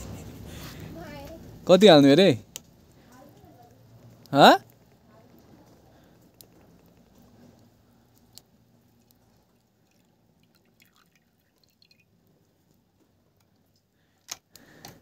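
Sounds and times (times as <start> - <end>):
liquid trickling into a wok: 8.8 - 12.3.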